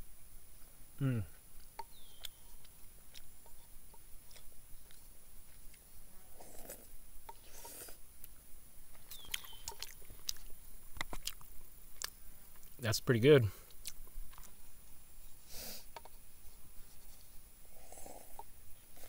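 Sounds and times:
person chewing: 1.6 - 12.7, 13.7 - 14.6.

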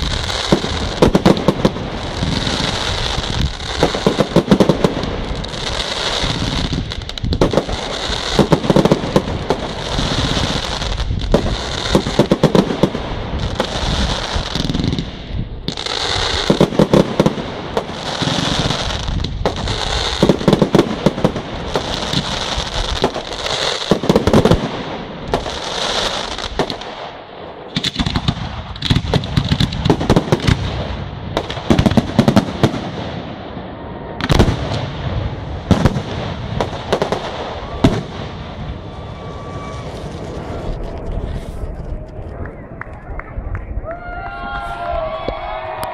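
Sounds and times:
crackling firework stars: 0.0 - 45.9
firework shells bursting bangs: 14.6 - 33.4.

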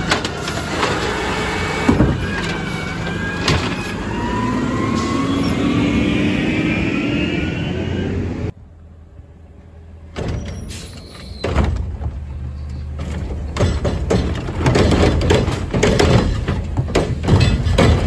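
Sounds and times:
metal and plastic clanks: 0.0 - 1.2, 12.8 - 18.0
garbage truck engine humming: 0.0 - 6.9
garbage truck pulling away: 0.0 - 8.5.

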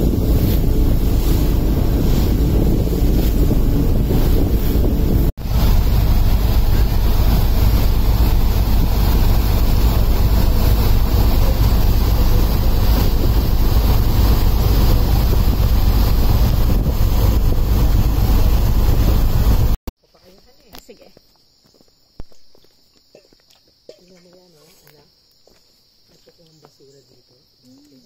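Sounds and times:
rush of water in wake: 0.0 - 19.8
wind buffeting microphone: 0.0 - 19.8.

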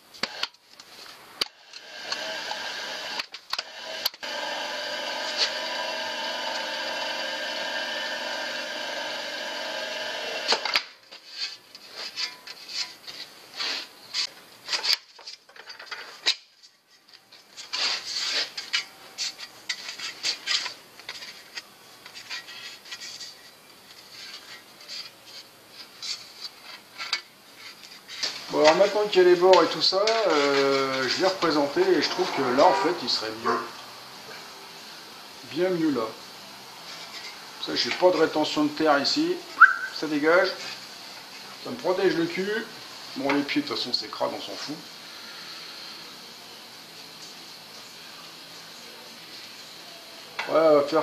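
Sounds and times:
slip roll machine running: 1.7 - 10.8.

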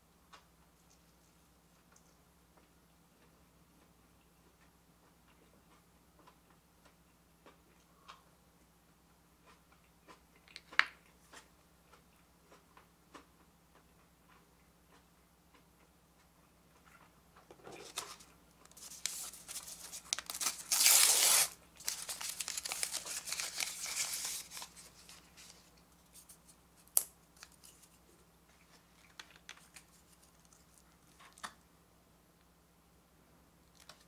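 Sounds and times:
paper sleeve tearing and crinkling: 17.9 - 25.6.

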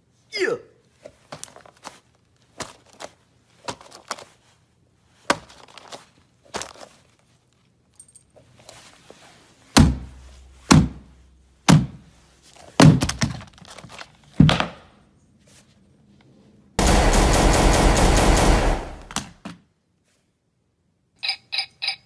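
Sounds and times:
dull thunks on cardboard box: 9.8 - 11.1, 11.7 - 12.1, 12.8 - 13.5
loud rapid rattling: 16.8 - 19.1.

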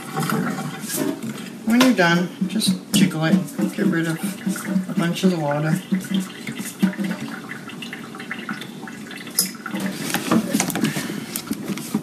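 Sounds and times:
strainer tapping and rattling: 0.0 - 7.4
water draining into a sink: 0.0 - 11.0.

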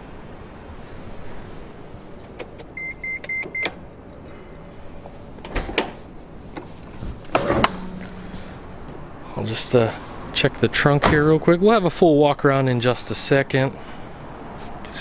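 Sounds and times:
short electronic beeps: 2.8 - 3.7.

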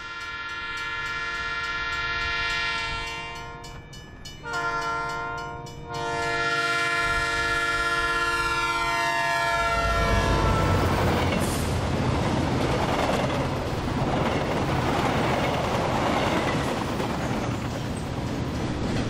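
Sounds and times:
train horn blasts: 0.0 - 3.8, 4.4 - 11.2
train rumbling: 0.0 - 19.0.

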